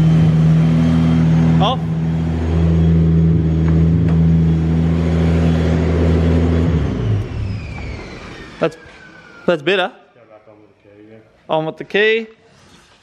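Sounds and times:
car engine idling: 0.0s - 8.5s.

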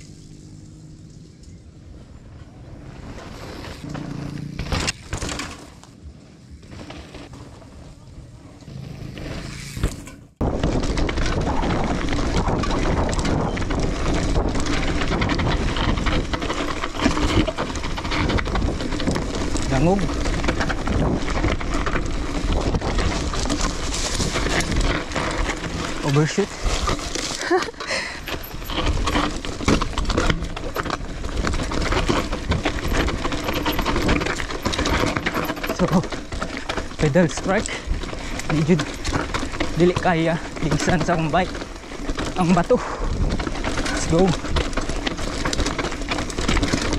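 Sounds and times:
bike rattling over rocks: 2.8s - 46.9s
wind rushing on microphone: 10.4s - 16.4s, 42.8s - 44.6s
wind rumble on microphone: 10.4s - 27.2s, 40.4s - 46.9s.

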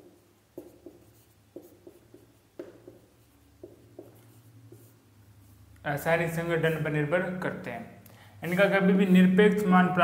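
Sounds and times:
marker pen writing on whiteboard: 0.0s - 7.2s.

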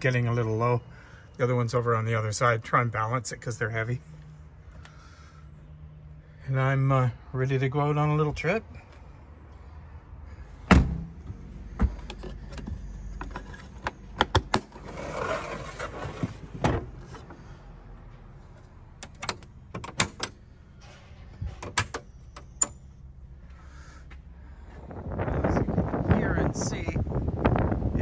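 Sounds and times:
wind rumble on microphone: 24.6s - 28.0s.

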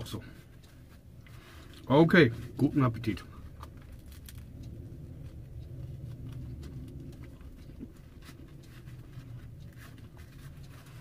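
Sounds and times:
steady low hum: 0.0s - 11.0s
person chewing: 3.4s - 11.0s.

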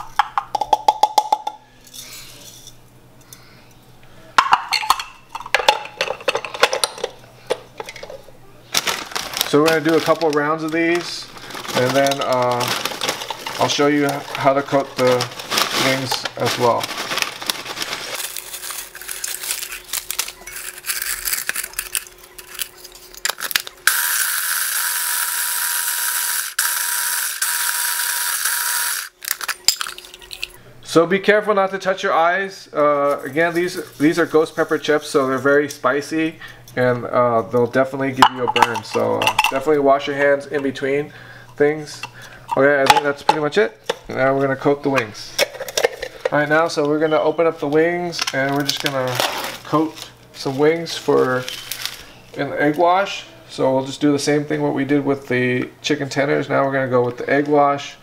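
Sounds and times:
chips rattling into plastic bowl: 8.7s - 23.7s, 29.2s - 30.6s, 48.2s - 52.0s
crinkly bag: 8.7s - 23.8s, 48.2s - 52.4s
crumbs pouring: 8.8s - 20.4s
food chopper motor grinding: 23.9s - 29.2s.

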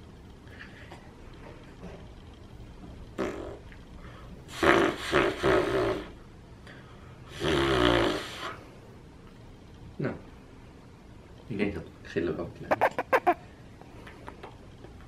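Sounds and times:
man blowing raspberries: 4.5s - 6.2s, 12.7s - 13.4s.

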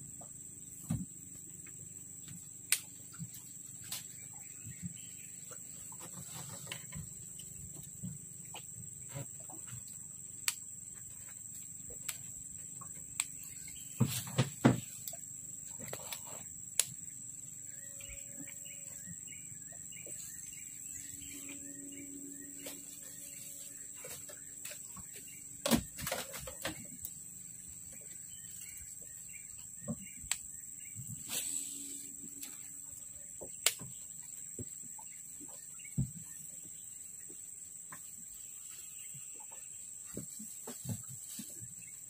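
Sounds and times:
high insect buzz: 10.1s - 35.1s
bird chirping: 12.8s - 14.3s, 17.0s - 36.6s.

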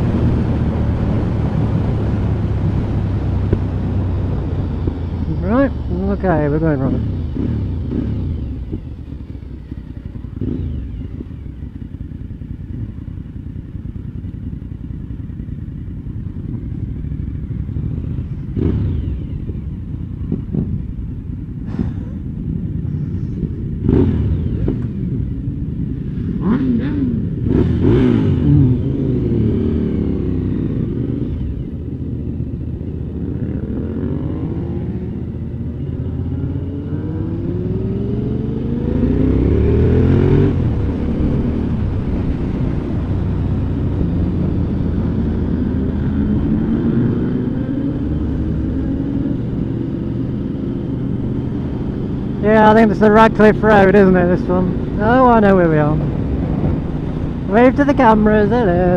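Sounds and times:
motorcycle engines revving: 0.0s - 58.9s
sharp engine pops: 21.6s - 22.2s
wind noise on microphone: 37.0s - 58.9s.

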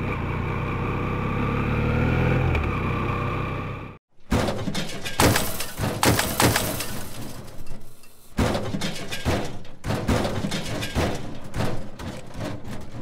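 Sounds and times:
wall crashing and crumbling: 4.2s - 7.8s, 8.4s - 13.0s.

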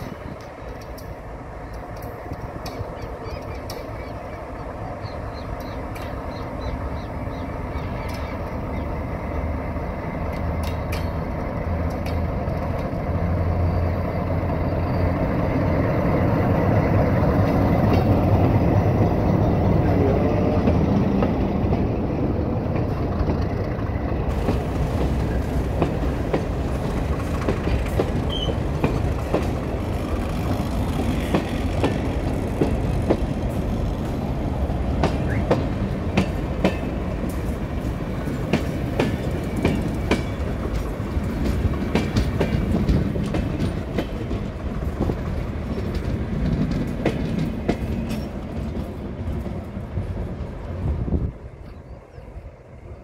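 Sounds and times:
diesel locomotive droning: 0.0s - 53.0s
wagon wheels clicking over rail joints: 34.9s - 49.7s.

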